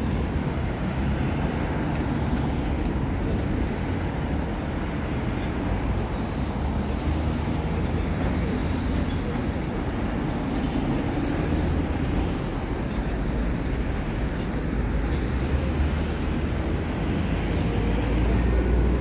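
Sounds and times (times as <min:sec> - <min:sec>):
cars driving through intersection: 0:00.0 - 0:19.0.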